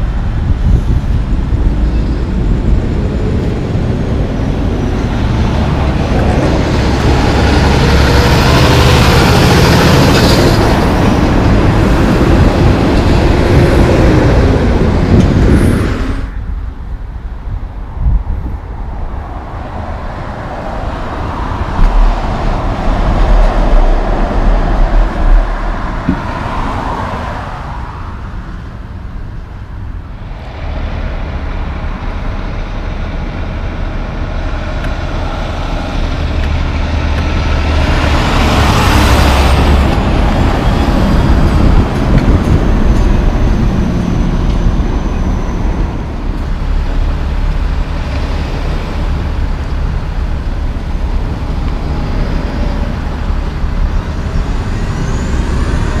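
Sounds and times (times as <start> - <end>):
truck passing at speed: 0.0 - 56.0
truck rumbling by slowly: 0.0 - 56.0.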